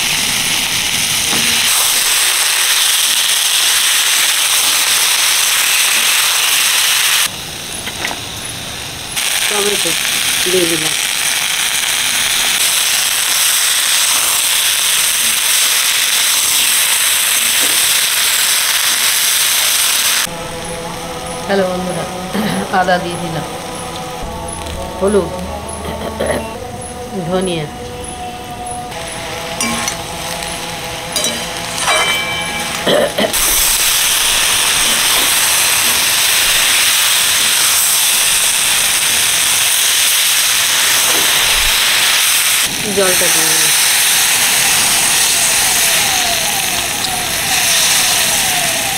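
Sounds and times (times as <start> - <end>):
vegetables sizzling in hot oil: 0.0 - 20.3, 28.9 - 48.9
spatula turning food: 28.8 - 48.9.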